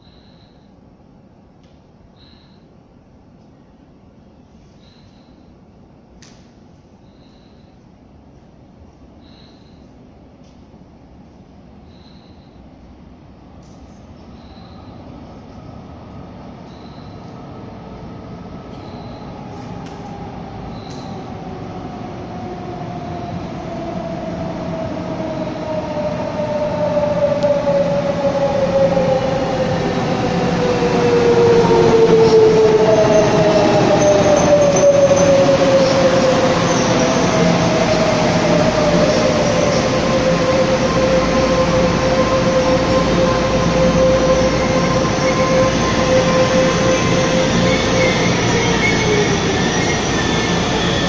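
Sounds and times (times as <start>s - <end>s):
electric train pulling in: 11.2s - 51.0s.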